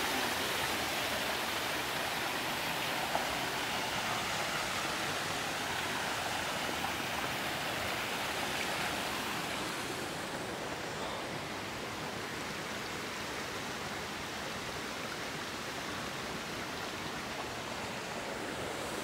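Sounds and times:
stream water over rocks: 0.0 - 19.0.

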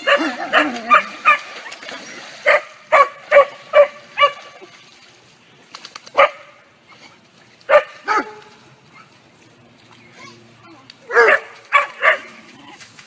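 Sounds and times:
dog barking: 2.4 - 4.4, 6.2 - 6.5, 7.7 - 8.4, 11.1 - 12.3.

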